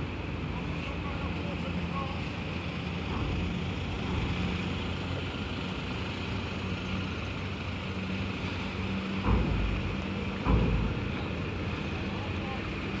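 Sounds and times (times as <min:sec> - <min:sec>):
cars driving off ramp: 0:00.0 - 0:13.0
low engine hum: 0:00.0 - 0:13.0
heavy thump of vehicle on ramp: 0:09.1 - 0:12.3.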